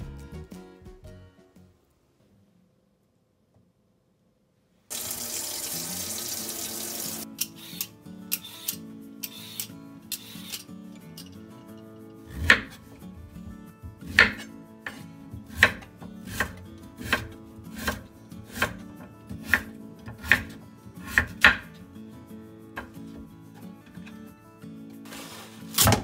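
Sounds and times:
knife chopping on wooden board: 12.4 - 12.8, 13.9 - 21.7.

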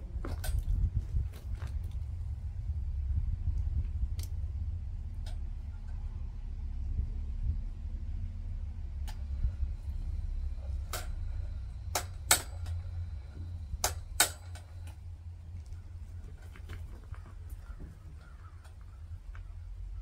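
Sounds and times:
low motor hum: 0.0 - 20.0
sharp clicks: 10.8 - 13.0, 13.6 - 15.0.

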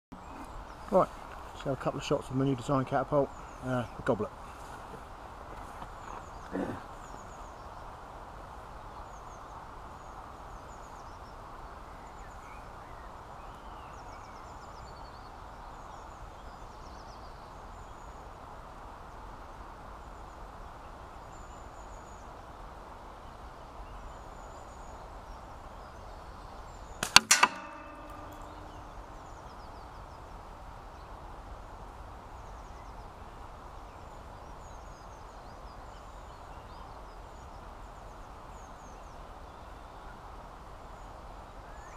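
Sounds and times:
steady outdoor hiss: 0.1 - 41.9
metal target clanking: 27.0 - 29.1.

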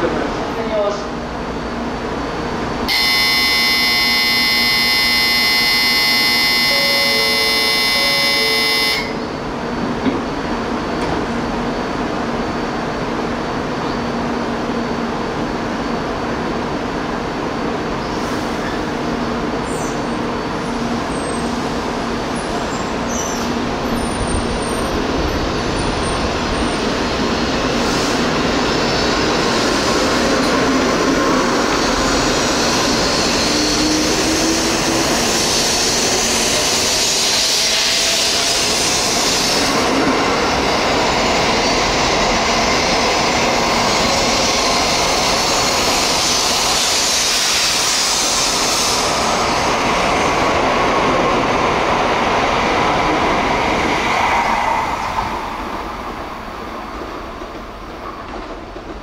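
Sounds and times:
platform departure bell ringing: 2.9 - 9.4
train rumble: 6.1 - 59.0.

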